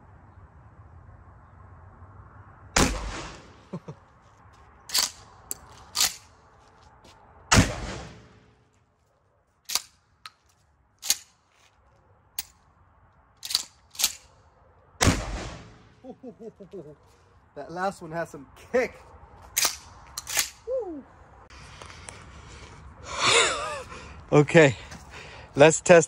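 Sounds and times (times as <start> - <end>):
shotgun blasts: 2.8 - 3.7, 7.5 - 8.4, 15.0 - 16.0.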